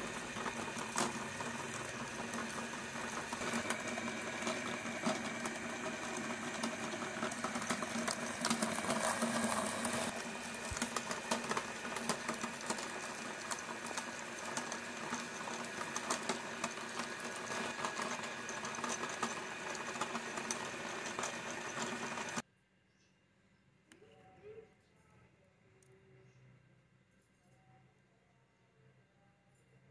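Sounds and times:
crackling and clicking of grinding balls: 0.0s - 22.4s
meat grinder motor hum: 0.0s - 22.4s.

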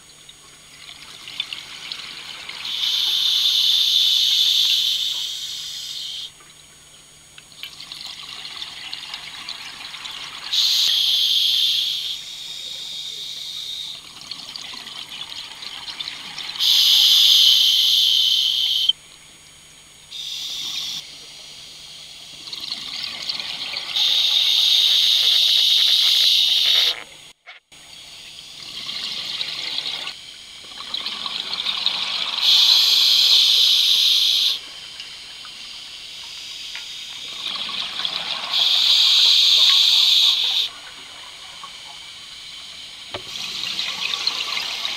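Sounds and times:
hissing regulator inhalations: 2.6s - 6.3s, 10.5s - 14.0s, 16.6s - 18.9s, 23.9s - 27.0s, 32.1s - 34.6s, 35.7s - 40.8s.

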